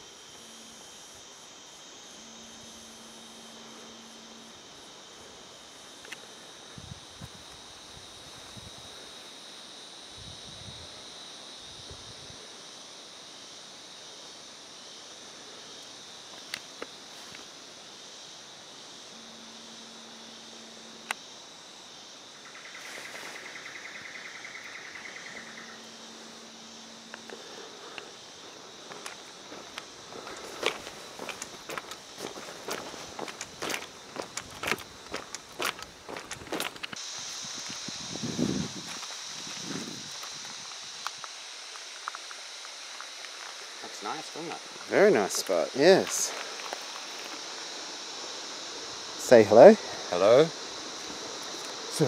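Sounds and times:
insects chorus shrill drone: 0:00.0 - 0:52.0
wind bumping microphone: 0:34.3 - 0:40.9.

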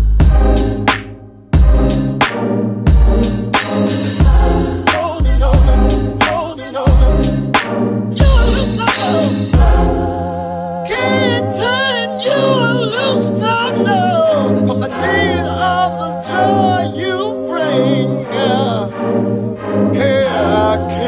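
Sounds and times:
held low chords: 0:00.0 - 0:21.0
person singing: 0:04.2 - 0:07.5, 0:08.2 - 0:21.0.

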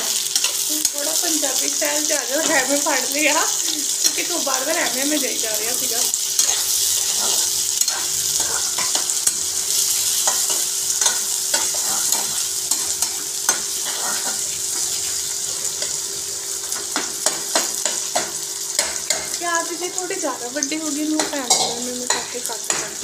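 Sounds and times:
vegetables sizzling in hot oil: 0:00.0 - 0:23.0
metal spatula scraping a pan: 0:06.3 - 0:16.0.

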